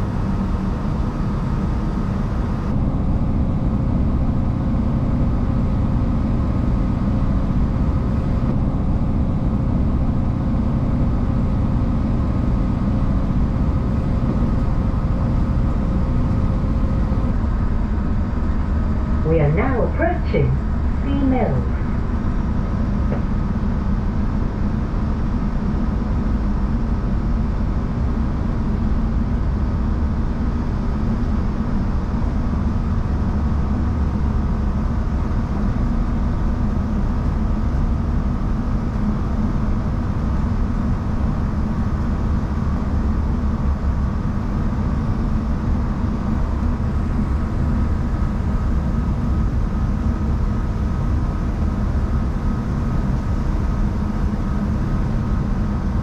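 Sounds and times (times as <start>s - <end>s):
faint steady whine: 0.0s - 56.0s.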